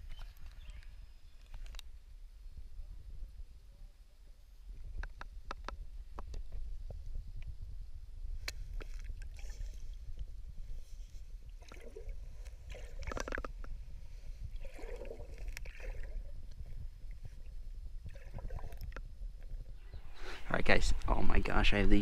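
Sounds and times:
underwater river current rumble: 0:08.6 - 0:22.0.

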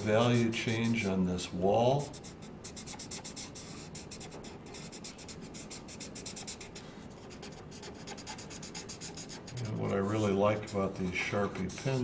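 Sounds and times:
marker rubbing on paper: 0:00.0 - 0:12.0.

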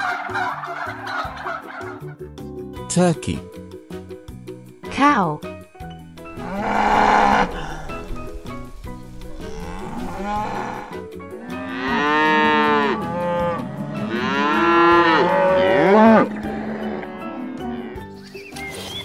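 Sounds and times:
cattle mooing: 0:06.3 - 0:18.0.

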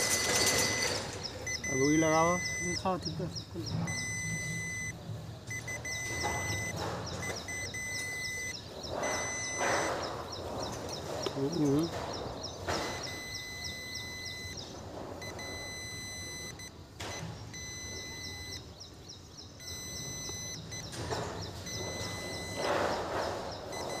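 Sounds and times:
multimeter beeping: 0:00.0 - 0:10.4, 0:11.1 - 0:18.8, 0:19.6 - 0:24.0.

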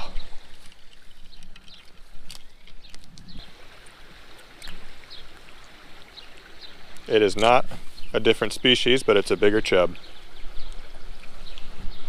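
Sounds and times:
clicks and rustles on dry grass: 0:00.0 - 0:05.6
creek running water: 0:00.0 - 0:12.0.

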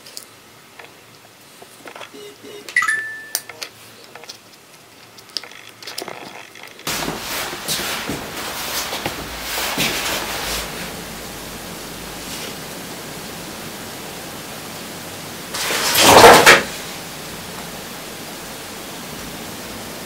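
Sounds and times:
plastic cup rustling: 0:03.8 - 0:10.6
background hiss: 0:06.8 - 0:20.0.

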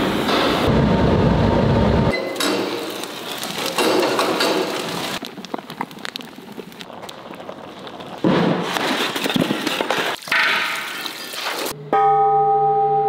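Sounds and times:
dense rushing noise: 0:00.0 - 0:02.1
molten metal crackling and spattering: 0:00.6 - 0:11.8.

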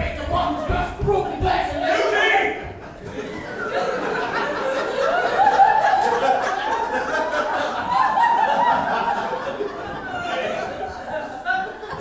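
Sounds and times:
audience laughing: 0:02.6 - 0:12.0.

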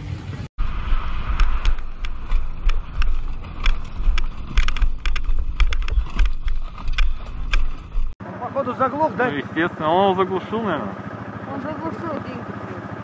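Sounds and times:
wind buffeting microphone: 0:00.6 - 0:08.2
quad bike tumbling knocks: 0:01.4 - 0:08.1.

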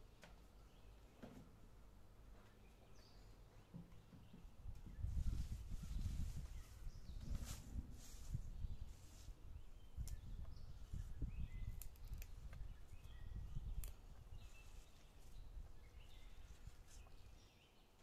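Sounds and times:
plant stems snapping: 0:11.7 - 0:12.6, 0:13.7 - 0:14.0.

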